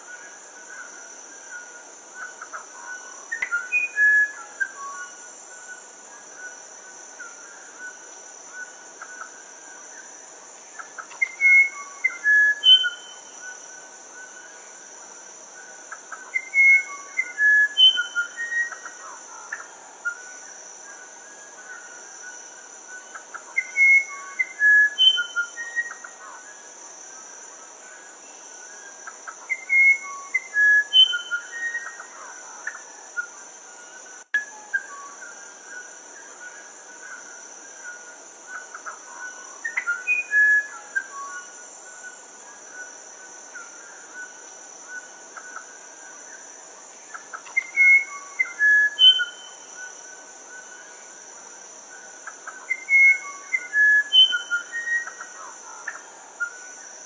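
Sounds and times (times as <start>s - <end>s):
high insect drone: 0.0s - 57.0s
bird whistling song: 2.2s - 5.1s, 11.0s - 13.6s, 16.2s - 18.9s, 23.1s - 26.1s, 29.5s - 32.0s, 39.6s - 42.2s, 47.4s - 49.7s, 52.6s - 55.3s.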